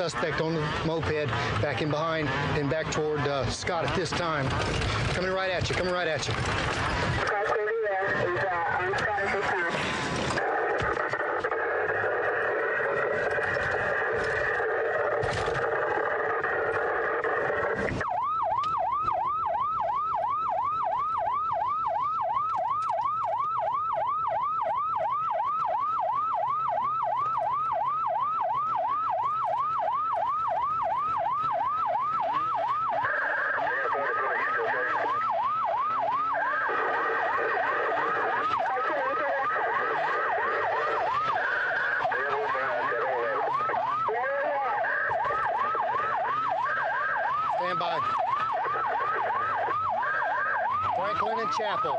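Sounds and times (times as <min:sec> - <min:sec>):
police siren yelping: 0:00.0 - 0:51.9.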